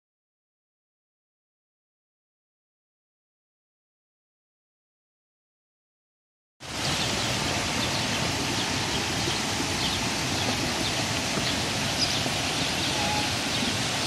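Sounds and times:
rushing pond water: 6.6 - 14.0
small birds chirping: 6.8 - 14.0.

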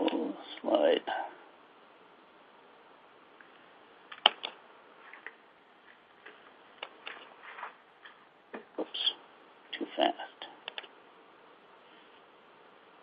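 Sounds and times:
low line hiss: 0.0 - 13.0
computer mouse clicks: 10.6 - 10.9.

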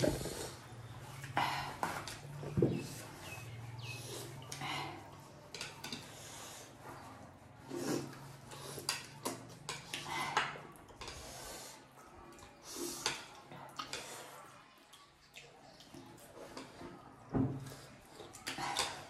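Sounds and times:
sniffs and hard breaths: 0.0 - 9.1, 9.9 - 14.5
noodles slurping and chewing: 0.0 - 19.0
chopsticks clicking on plates: 5.4 - 6.2, 8.5 - 11.2.

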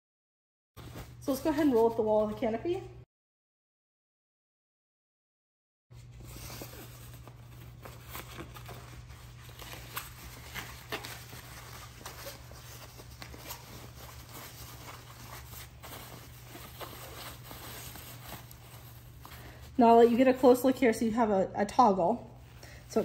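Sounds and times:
fabric rustling and crinkling: 0.8 - 2.6, 5.9 - 20.8.

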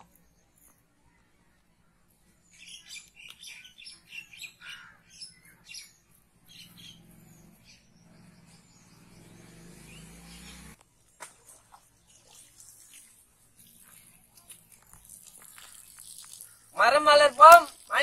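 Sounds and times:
birds chirping: 0.0 - 10.8, 11.9 - 18.0.

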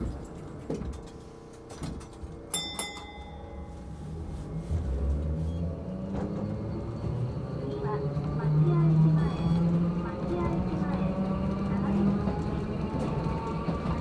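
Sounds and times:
tram motors humming: 0.0 - 14.0
tram bell ringing: 2.5 - 4.4.

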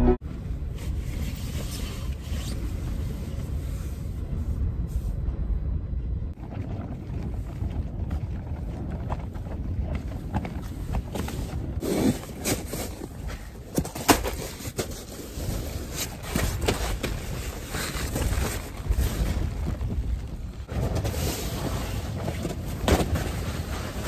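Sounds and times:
wind rumbling on microphone: 0.2 - 24.0
tent fabric rustling and flapping: 6.4 - 24.0.

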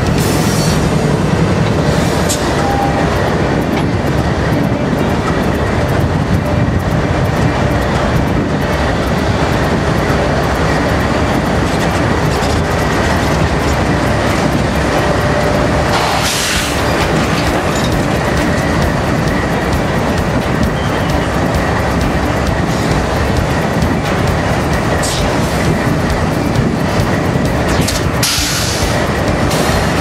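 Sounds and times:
train wheels on rails: 0.0 - 30.0.

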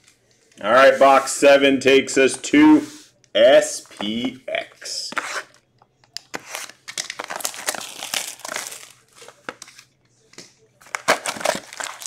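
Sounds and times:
plastic wrap tearing and crinkling: 6.4 - 9.4, 10.8 - 12.0.

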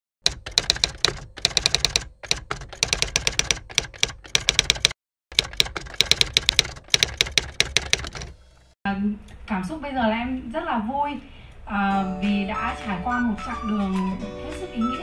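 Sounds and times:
keyboard typing: 0.2 - 8.4.

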